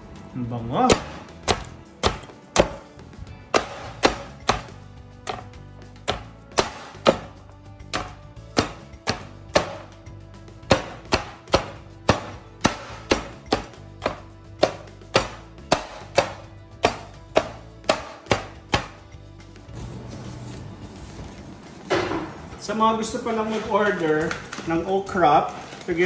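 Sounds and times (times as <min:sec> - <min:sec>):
knife chopping on wooden board: 0:00.9 - 0:02.9, 0:03.5 - 0:10.0, 0:10.6 - 0:19.0.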